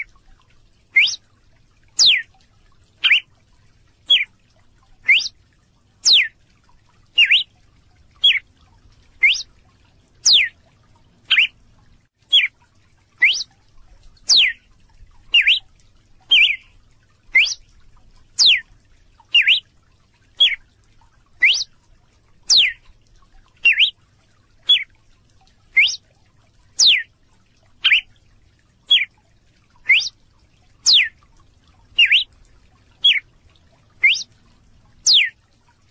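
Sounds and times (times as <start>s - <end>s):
bird calling high sweeping note: 1.0s - 1.2s, 5.1s - 5.3s, 7.2s - 7.4s, 9.2s - 9.4s, 13.2s - 13.4s, 21.4s - 21.6s, 23.7s - 23.9s, 25.8s - 26.0s, 29.9s - 30.1s, 32.0s - 32.3s, 34.0s - 34.2s.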